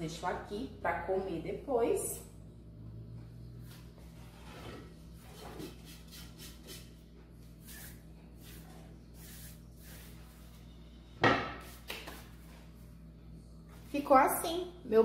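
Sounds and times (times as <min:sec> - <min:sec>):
low steady hum: 0:00.0 - 0:15.0
hand brushing crumbs on countertop: 0:07.6 - 0:10.6.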